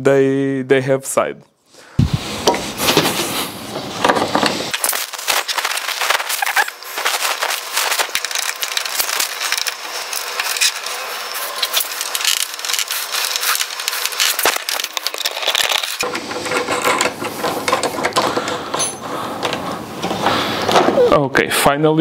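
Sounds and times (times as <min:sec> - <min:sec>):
plastic parts crackling and clicking: 0:04.1 - 0:18.8.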